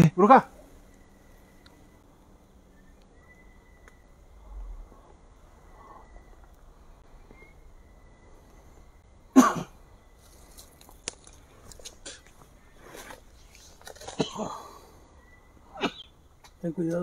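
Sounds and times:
person coughing: 0:09.4 - 0:09.8, 0:14.1 - 0:14.7.

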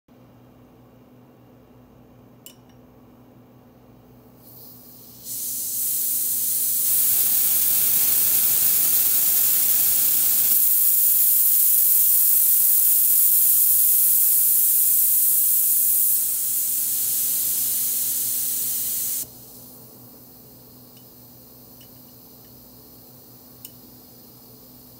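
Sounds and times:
gas hissing from canister: 0:04.4 - 0:24.9
valve click: 0:04.5 - 0:19.3.

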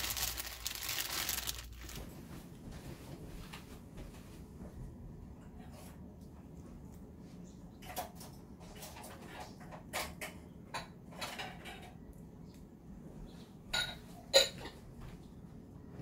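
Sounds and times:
wet peeling and squishing: 0:00.0 - 0:02.0.

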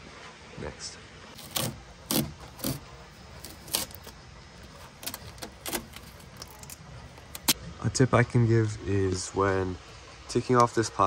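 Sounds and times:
plastic film crinkling: 0:01.4 - 0:07.6.

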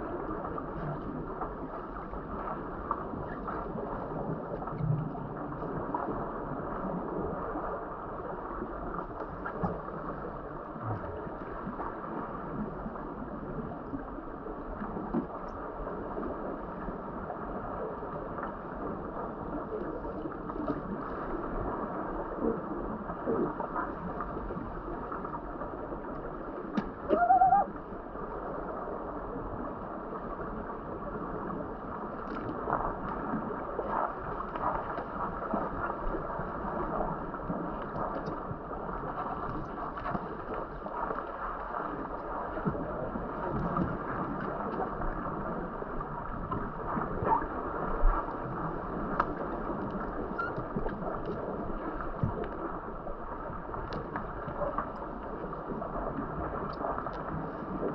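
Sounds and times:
underwater clicks and knocks: 0:26.7 - 0:27.5, 0:49.2 - 0:51.5.

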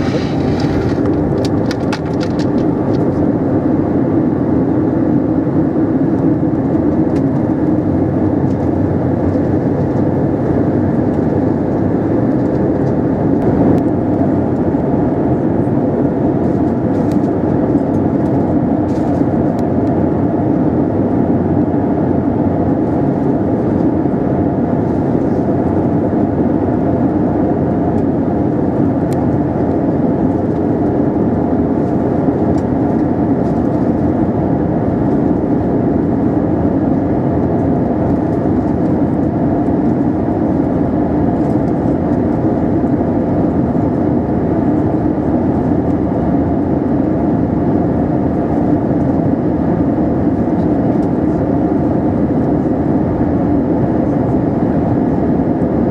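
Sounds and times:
air rushing past fuselage: 0:00.0 - 0:01.8
jet engines humming: 0:00.0 - 0:55.9.

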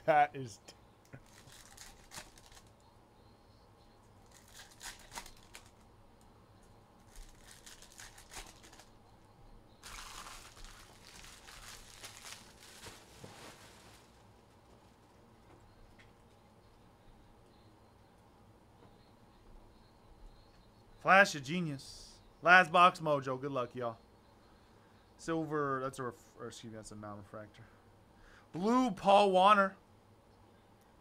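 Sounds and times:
foil wrappers crinkling and tearing: 0:01.2 - 0:02.8, 0:04.2 - 0:05.8, 0:07.0 - 0:08.9, 0:09.8 - 0:15.2.

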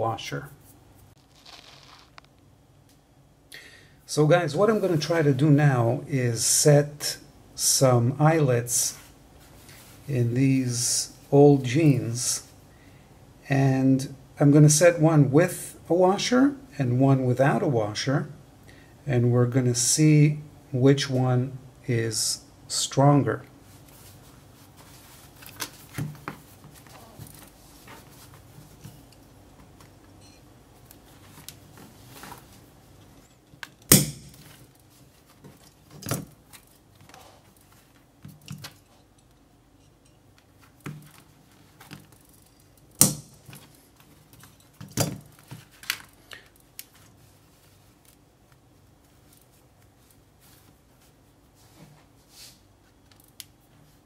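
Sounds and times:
rustling of denim: 0:00.7 - 0:02.3.

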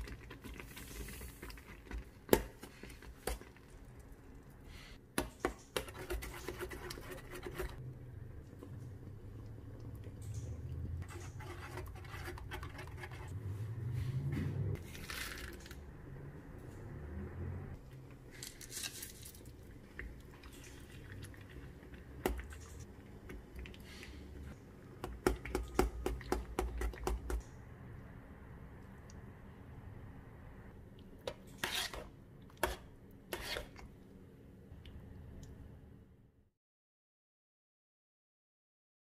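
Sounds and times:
spoon stirring and scraping pan: 0:05.4 - 0:07.8, 0:10.0 - 0:13.4, 0:31.2 - 0:33.9.

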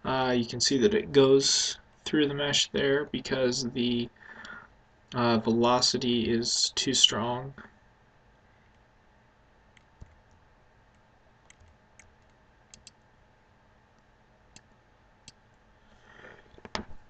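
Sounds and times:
faint steady hum: 0:00.0 - 0:17.0
computer mouse clicking: 0:09.7 - 0:13.0.

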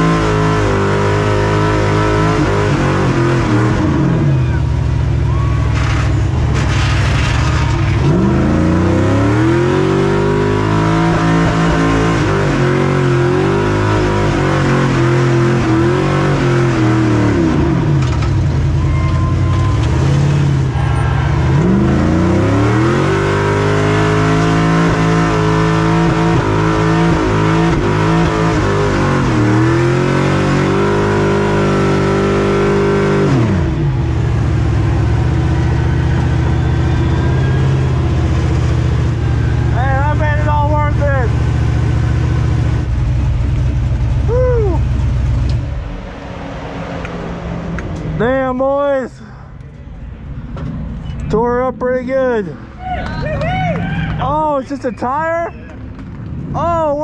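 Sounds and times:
truck engine revving: 0:00.0 - 0:57.0.

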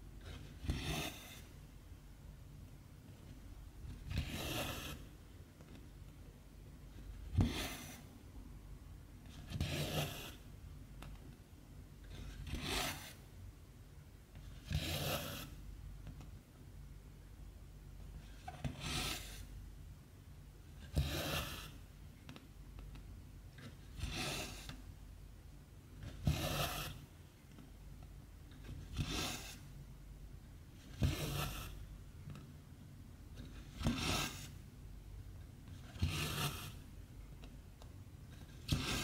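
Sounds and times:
thread rasping through fabric: 0:35.7 - 0:36.8.

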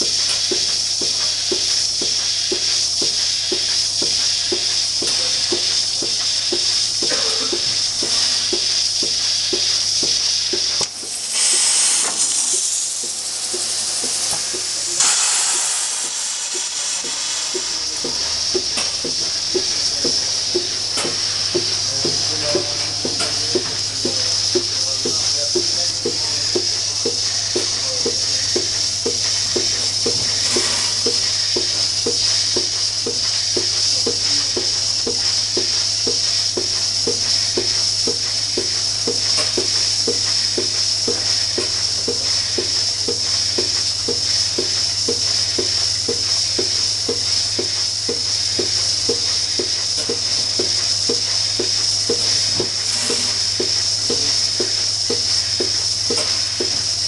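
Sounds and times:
pulsator ticking: 0:00.0 - 0:07.6
vacuum hiss: 0:00.0 - 0:57.0.

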